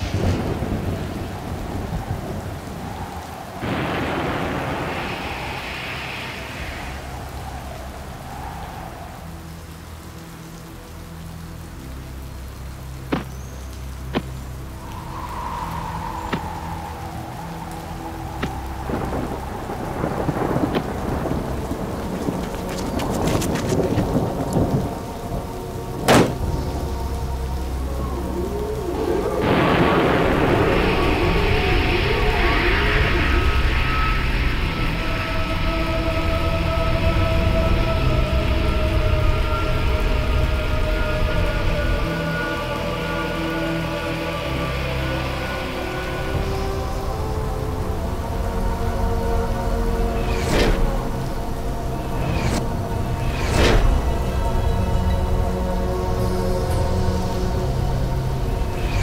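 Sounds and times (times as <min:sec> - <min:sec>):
thunder rumbling: 0:00.0 - 0:09.9, 0:14.0 - 0:43.1, 0:43.8 - 0:59.0
heavy rain falling: 0:00.0 - 0:59.0
loud rushing noise: 0:49.8 - 0:54.6.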